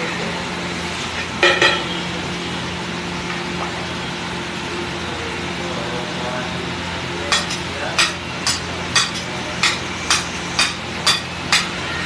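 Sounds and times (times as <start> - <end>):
ladles stirring: 7.3 - 11.7.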